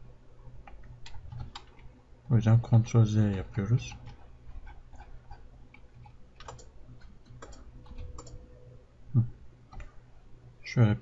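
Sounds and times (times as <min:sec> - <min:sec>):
steady low hum: 0:00.0 - 0:11.0
computer mouse clicks: 0:00.6 - 0:01.9, 0:04.0 - 0:08.4, 0:09.7 - 0:10.0
keyboard key presses: 0:06.0 - 0:08.4.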